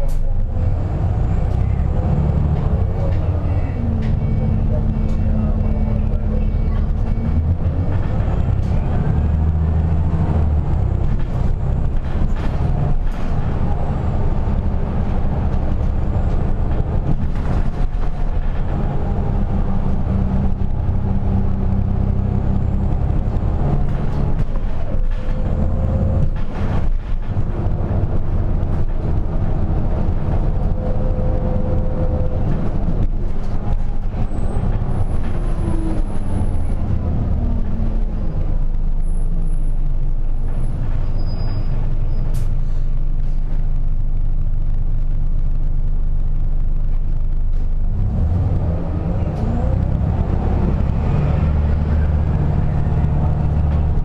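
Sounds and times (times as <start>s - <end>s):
bus engine running: 0.0s - 54.0s.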